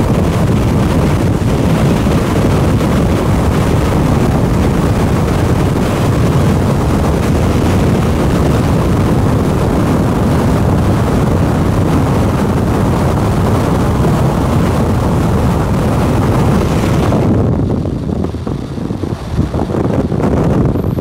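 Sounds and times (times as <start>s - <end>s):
vehicle road noise rumble: 0.0s - 21.0s
wind buffeting microphone: 0.0s - 21.0s.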